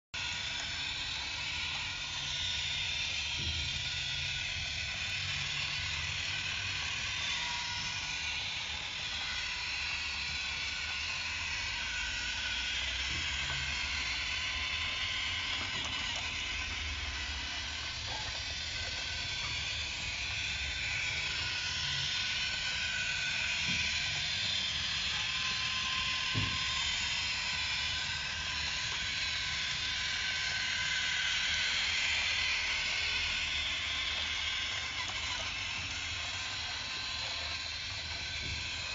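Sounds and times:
toy train click: 0:00.2 - 0:38.9
toy train motor whirring: 0:00.2 - 0:38.9.

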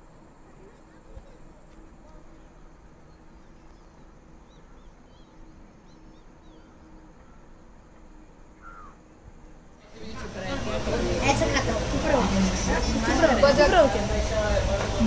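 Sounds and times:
faint hum: 0:00.0 - 0:15.0
faint bird chirps: 0:00.6 - 0:09.3.

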